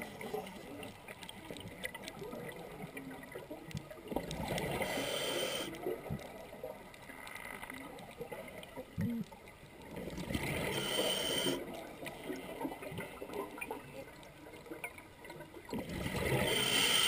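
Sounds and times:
hissing regulator inhalation: 4.8 - 5.7, 10.7 - 11.6, 16.4 - 17.0.

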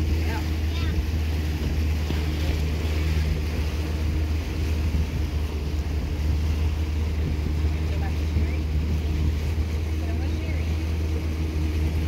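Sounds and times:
motorboat engine droning: 0.0 - 12.0
water rushing past hull: 0.0 - 12.0
wind on microphone: 0.0 - 12.0.

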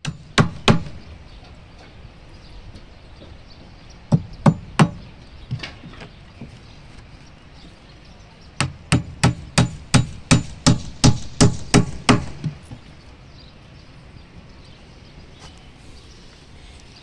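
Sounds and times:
hammer striking nail into wood: 0.0 - 1.0, 8.6 - 12.6.

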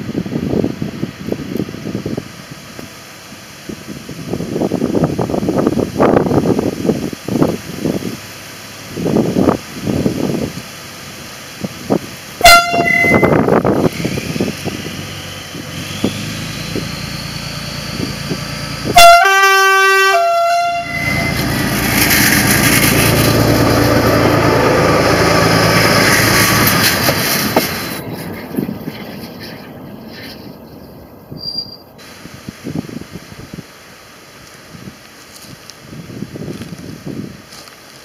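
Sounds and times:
diesel railcar engine running: 0.0 - 38.0
two-tone train horn: 12.4 - 13.6, 18.8 - 21.6.

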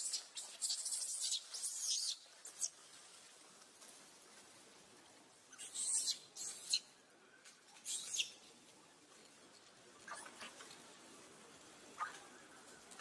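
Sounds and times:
infant monkey squeaking: 0.0 - 2.7, 5.5 - 6.9, 7.8 - 8.4, 10.0 - 10.7, 12.0 - 12.2.

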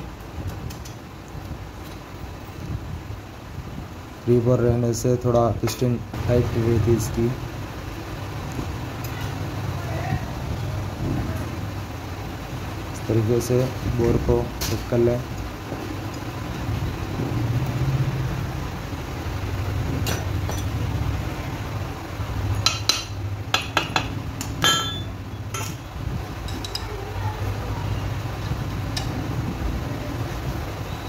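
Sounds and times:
metal clinks and taps: 22.5 - 25.8, 26.4 - 26.9.

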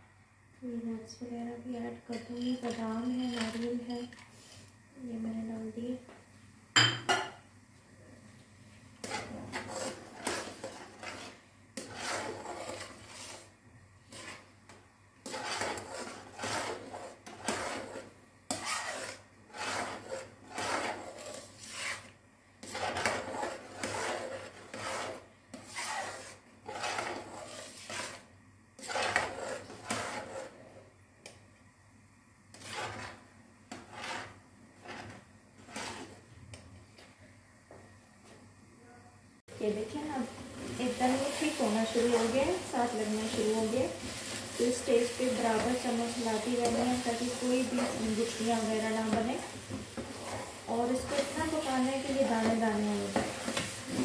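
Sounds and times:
metal spoon scraping a wok: 9.0 - 14.5, 15.2 - 30.8, 32.5 - 36.3, 41.0 - 54.0.

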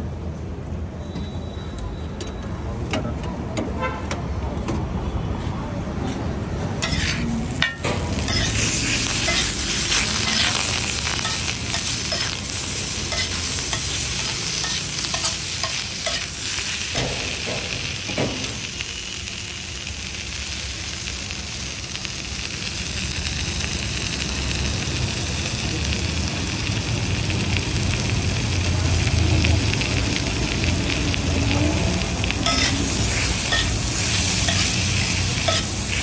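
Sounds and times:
spatula scraping and knocking pan: 6.8 - 9.6
food sizzling on griddle: 6.8 - 36.0.

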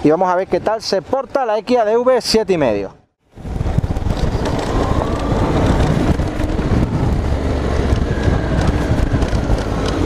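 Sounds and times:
wind buffeting microphone: 3.2 - 10.0
motorcycle engine running: 3.4 - 10.0.

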